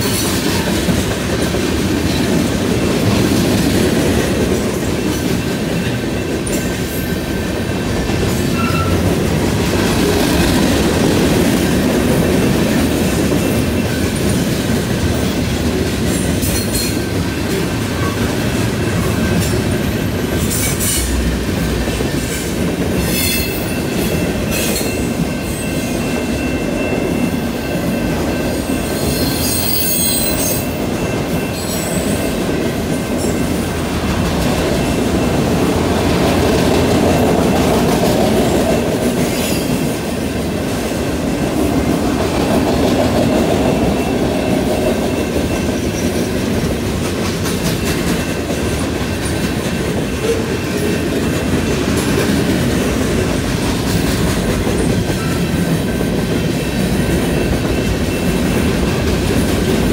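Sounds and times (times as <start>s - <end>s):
train wheels rumbling on rails: 0.0s - 59.9s
high wheel squeals: 8.4s - 9.2s, 23.0s - 32.4s.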